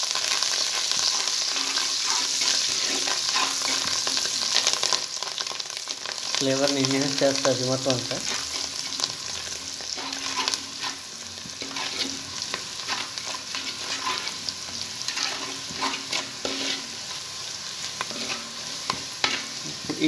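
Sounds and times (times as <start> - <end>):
onions sizzling in hot oil: 0.0 - 20.0
spatula scraping metal pot: 1.0 - 4.2, 9.9 - 17.1, 18.0 - 19.6.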